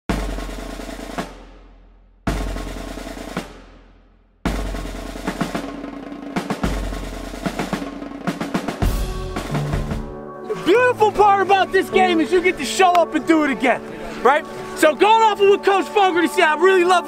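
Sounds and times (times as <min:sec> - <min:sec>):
snare drum roll: 0:00.1 - 0:10.1.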